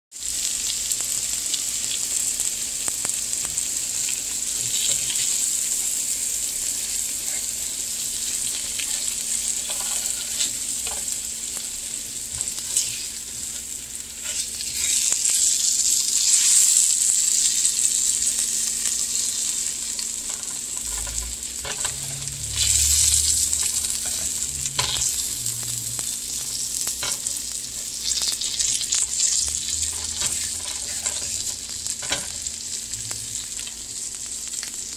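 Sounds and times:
fish sizzling in a pan: 0:00.1 - 0:34.9
spatula scraping and tapping: 0:08.5 - 0:11.1, 0:20.3 - 0:22.3, 0:29.8 - 0:32.4.

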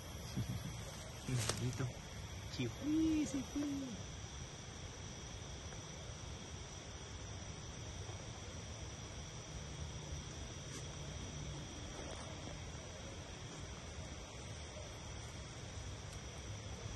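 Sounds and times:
crickets and insects chirring: 0:00.0 - 0:16.9.

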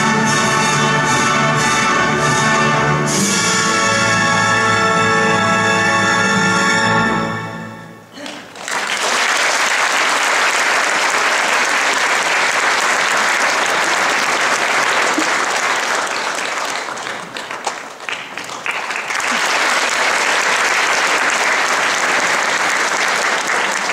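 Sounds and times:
audience applauding: 0:08.2 - 0:23.9.

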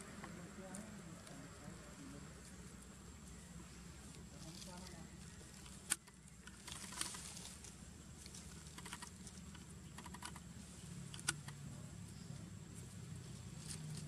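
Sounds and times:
dry leaves crackling and rustling: 0:00.0 - 0:09.6.

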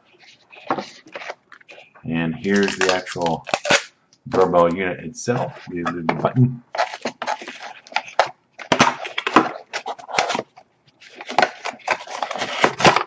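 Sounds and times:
hands scraping cardboard box: 0:06.7 - 0:10.5, 0:11.1 - 0:13.0.

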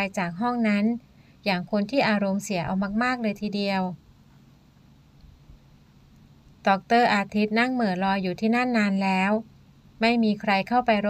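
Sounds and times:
low steady hum: 0:00.0 - 0:11.0
light hiss: 0:04.0 - 0:06.7.

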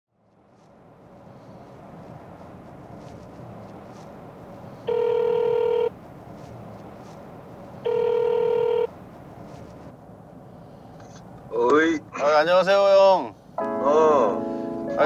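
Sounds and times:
low car cabin hum: 0:00.2 - 0:15.0
telephone ringback tone: 0:04.8 - 0:05.9, 0:07.8 - 0:08.9.

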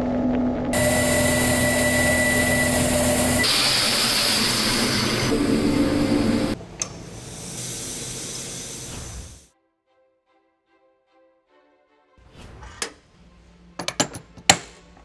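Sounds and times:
grinding machine humming: 0:00.0 - 0:09.4
faint steady tones: 0:00.8 - 0:09.0
coolant spray hissing: 0:00.8 - 0:09.5.

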